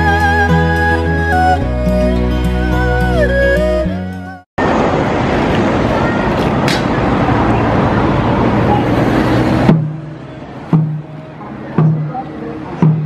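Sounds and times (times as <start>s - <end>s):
loud rush of noise: 4.6s - 13.0s
slow booming drum beats: 9.6s - 13.0s.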